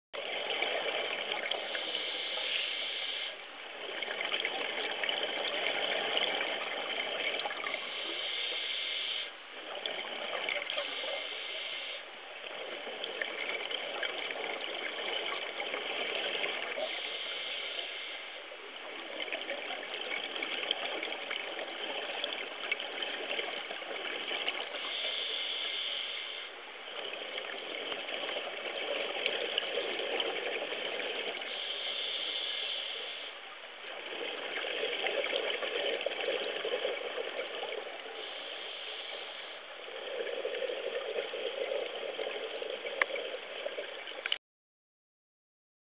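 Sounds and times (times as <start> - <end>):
regulator hiss on inhale: 1.6 - 3.4, 7.6 - 9.4, 10.7 - 12.1, 16.7 - 18.5, 24.7 - 26.6, 31.4 - 33.5, 38.0 - 43.1
exhaled bubbles rushing: 3.7 - 8.2, 26.9 - 31.7, 33.8 - 38.5.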